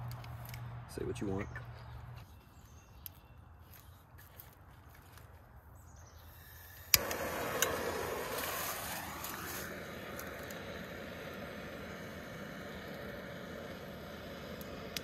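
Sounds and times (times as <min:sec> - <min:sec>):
torch flame hissing: 0:06.3 - 0:15.0
torch igniter click: 0:06.8 - 0:15.0.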